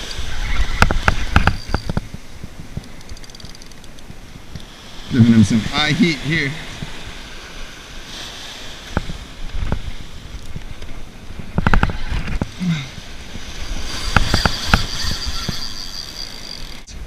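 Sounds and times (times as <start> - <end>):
wind: 0.0 - 17.0
thin high whine: 0.2 - 2.0, 13.6 - 17.0
fishing reel clicks and rattles: 2.8 - 4.7, 13.9 - 16.9
surf: 4.1 - 17.0.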